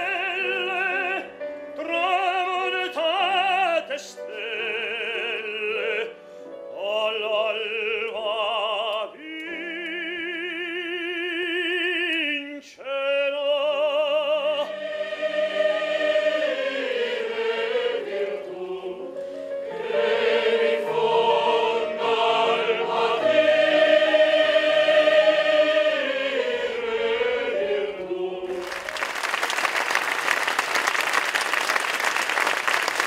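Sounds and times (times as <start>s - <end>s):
man singing operatically: 0.0s - 6.1s, 6.7s - 14.7s
mixed choir singing: 14.1s - 29.0s.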